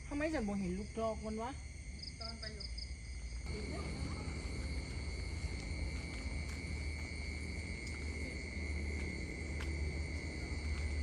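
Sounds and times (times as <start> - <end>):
night insects trilling: 0.0 - 11.0.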